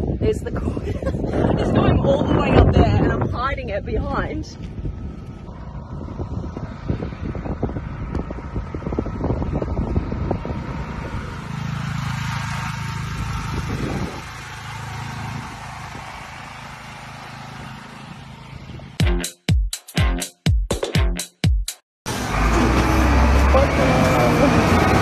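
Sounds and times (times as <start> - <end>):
wind buffeting microphone: 0.0 - 16.7, 17.3 - 19.0
generator engine humming: 1.2 - 20.2, 22.1 - 25.0.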